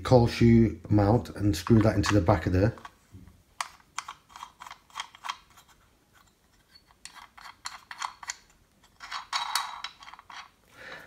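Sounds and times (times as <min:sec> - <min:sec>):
small parts clicking and tapping: 0:03.6 - 0:10.6.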